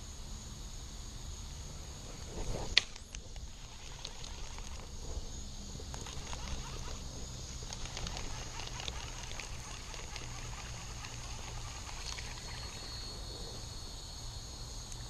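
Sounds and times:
high insect trill: 0.0s - 15.0s
fishing reel ticking: 2.8s - 5.0s, 5.8s - 13.1s.

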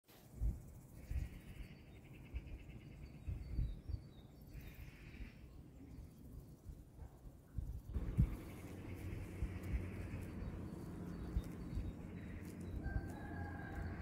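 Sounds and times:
faint bird chirps: 0.9s - 6.8s, 7.6s - 14.0s
wind buffeting microphone: 2.3s - 5.0s, 7.6s - 14.0s
high pulsing buzz: 8.0s - 14.0s.

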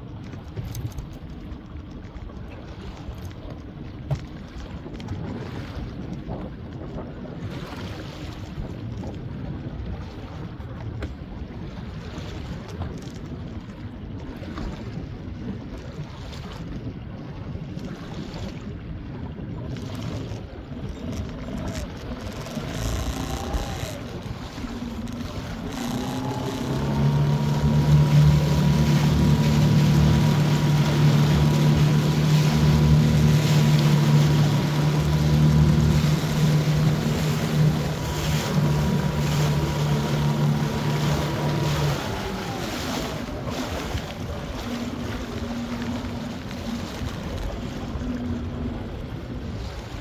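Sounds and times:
choppy water: 0.0s - 50.0s
boat motor humming and whining: 17.7s - 50.0s.

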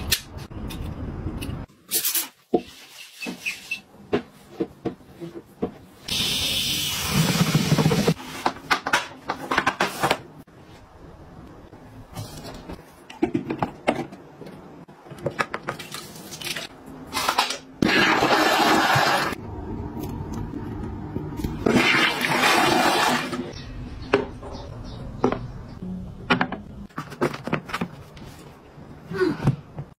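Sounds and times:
toilet flushing: 17.8s - 19.4s, 21.6s - 23.5s.

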